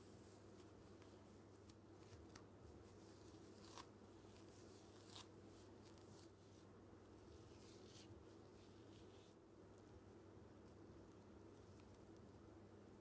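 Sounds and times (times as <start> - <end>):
faint room hum: 0.0 - 13.0
comb scratching through wet hair: 2.9 - 6.4.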